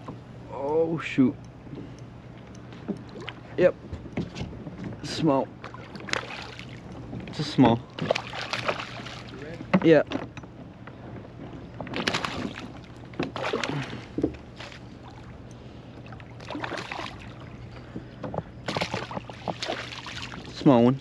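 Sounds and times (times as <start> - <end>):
water splashing against kayak: 5.6 - 7.3, 7.9 - 9.8, 11.5 - 15.4, 16.0 - 17.6, 18.6 - 20.7.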